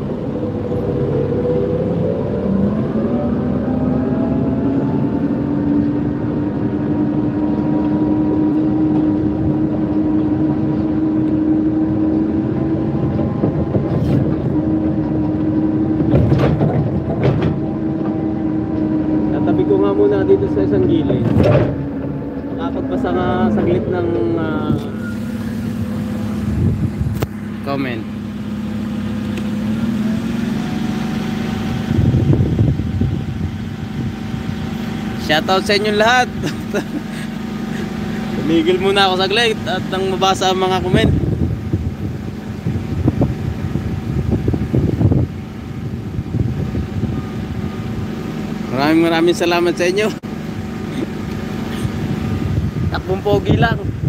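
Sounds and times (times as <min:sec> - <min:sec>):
wind buffeting microphone: 0:00.0 - 0:27.6, 0:31.4 - 0:36.6, 0:40.2 - 0:48.3, 0:51.8 - 0:54.0
low rumble: 0:00.0 - 0:30.7, 0:31.5 - 0:48.1
forklift running: 0:00.0 - 0:54.0.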